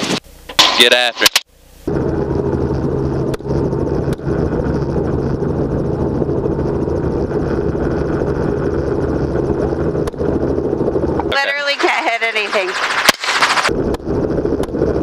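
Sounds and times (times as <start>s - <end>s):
helicopter rotor and engine drone: 1.9s - 15.0s.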